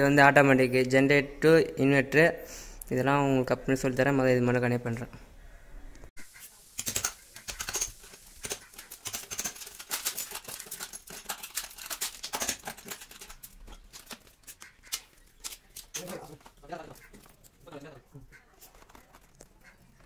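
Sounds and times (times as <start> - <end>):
wires clicking and rustling: 6.4 - 20.0.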